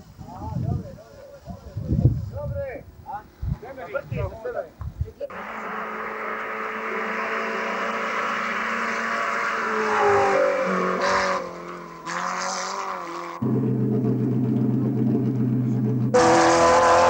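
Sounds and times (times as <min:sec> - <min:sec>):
tyre and road noise: 0:04.8 - 0:17.0
low engine drone: 0:05.3 - 0:17.0
racing car engine revving: 0:05.3 - 0:17.0.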